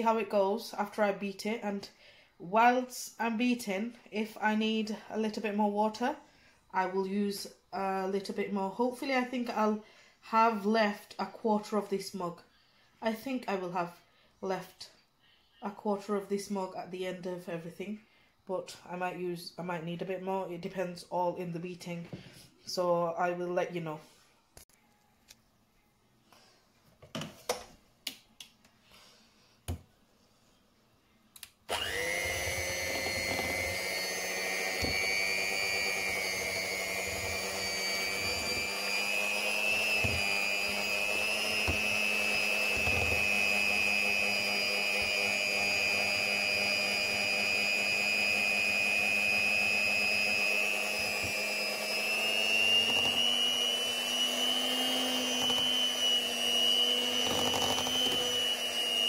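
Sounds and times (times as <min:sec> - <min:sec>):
electric hand mixer whining: 0:31.7 - 0:59.0.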